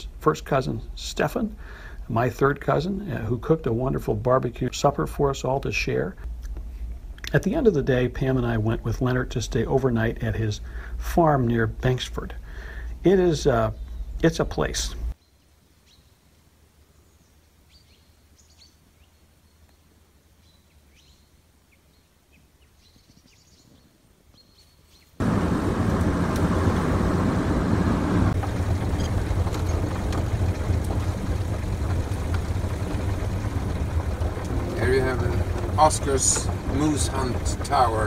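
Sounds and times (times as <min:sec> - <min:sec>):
faint bird chirps: 0:15.2 - 0:25.2
car engine and road noise: 0:25.2 - 0:38.0.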